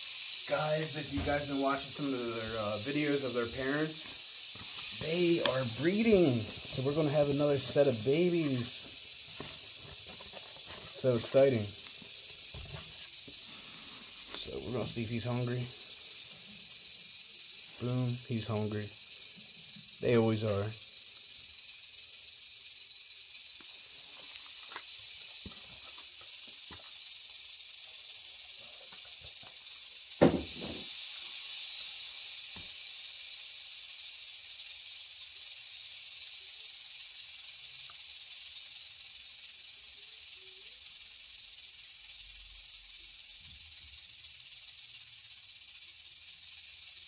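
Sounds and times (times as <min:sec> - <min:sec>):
rattlesnake rattling: 0:00.0 - 0:47.0
sharp knock: 0:30.2 - 0:30.8.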